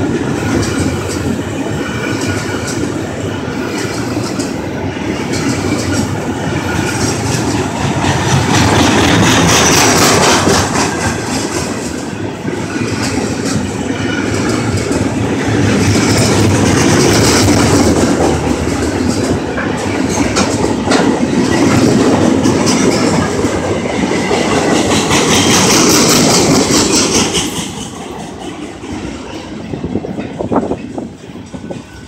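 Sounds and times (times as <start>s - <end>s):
train wheels rumbling on track: 0.0s - 32.0s
sharp clicks and clacks: 5.3s - 12.0s, 12.9s - 29.1s.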